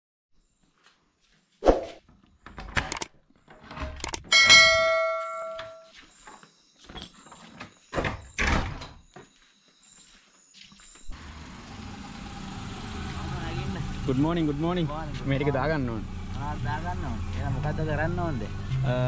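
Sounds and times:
metal object struck ringing: 0:04.3 - 0:05.9.

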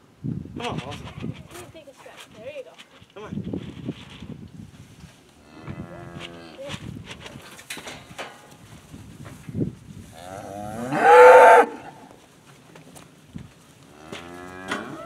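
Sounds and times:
cow mooing: 0:10.2 - 0:12.0, 0:14.0 - 0:15.0.

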